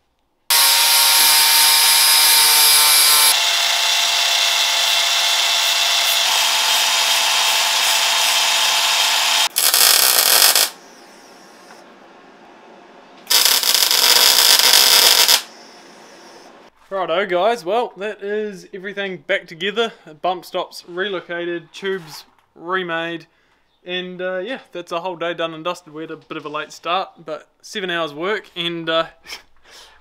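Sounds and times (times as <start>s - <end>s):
welder crackling: 0.0s - 10.8s, 13.3s - 15.5s
belt file sanding steel: 0.5s - 9.4s
power tool running: 0.5s - 10.8s, 13.3s - 15.5s.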